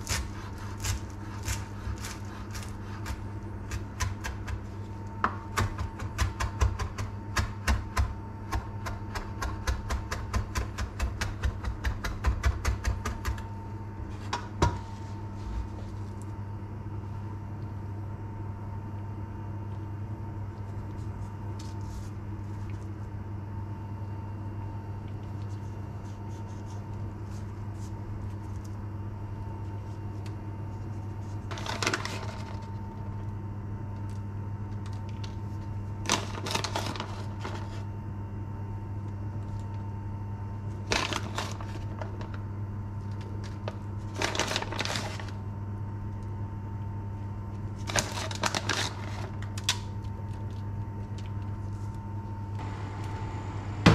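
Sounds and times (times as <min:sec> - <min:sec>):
steady low hum: 0:00.0 - 0:53.9
plastic bag crinkling: 0:31.5 - 0:32.9, 0:36.1 - 0:37.7, 0:40.8 - 0:42.4, 0:43.4 - 0:45.4, 0:47.8 - 0:49.7.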